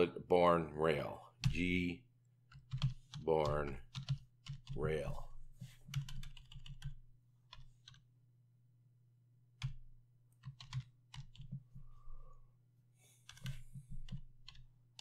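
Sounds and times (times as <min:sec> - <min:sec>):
keyboard typing clicks: 0:10.4 - 0:11.6.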